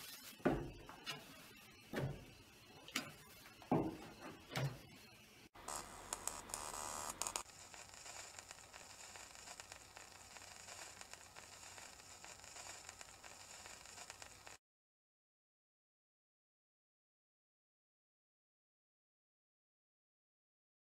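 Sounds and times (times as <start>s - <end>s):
static hiss with crackles: 5.2s - 14.6s.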